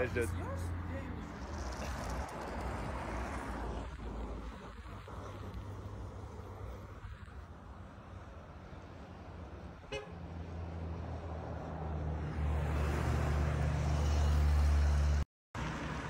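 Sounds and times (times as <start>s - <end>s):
vehicle engine and road rumble: 0.0s - 16.0s.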